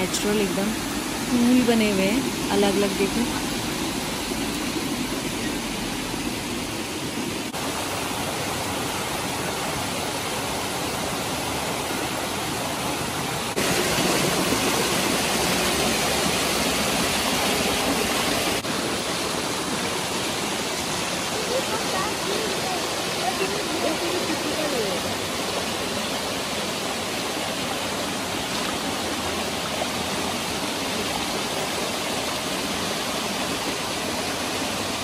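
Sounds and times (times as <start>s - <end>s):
waterfall rushing over rock: 0.0s - 35.0s.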